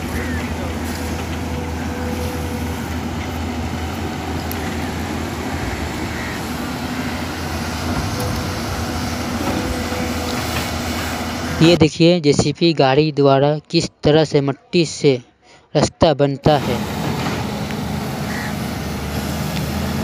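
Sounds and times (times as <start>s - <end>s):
diesel excavator engine droning: 0.0s - 12.1s, 16.4s - 20.0s.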